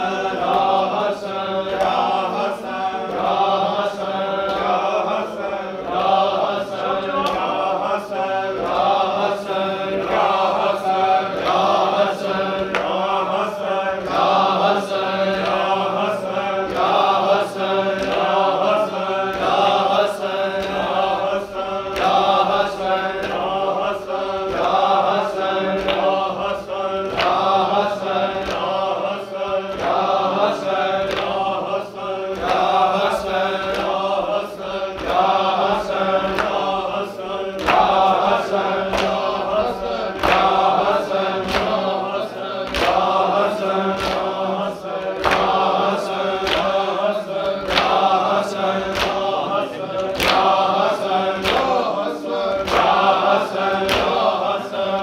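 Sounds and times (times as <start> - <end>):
group of voices chanting: 0.0 - 55.0.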